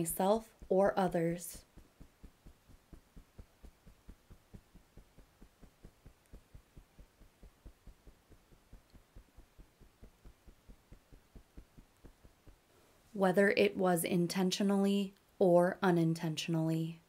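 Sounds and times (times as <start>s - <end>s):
fingertips tapping through clothing: 0.0s - 12.9s.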